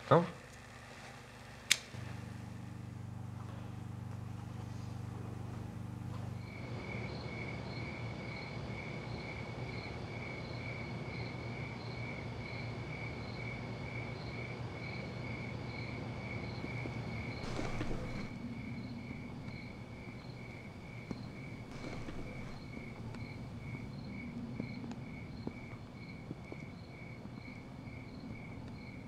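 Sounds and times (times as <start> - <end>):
low steady hum: 0.0 - 29.0
cricket chirping: 4.9 - 29.0
low rumble: 16.6 - 29.0.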